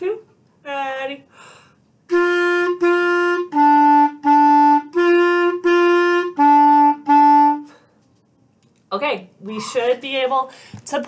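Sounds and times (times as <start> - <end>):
clarinet playing two-note pattern: 2.1 - 7.7.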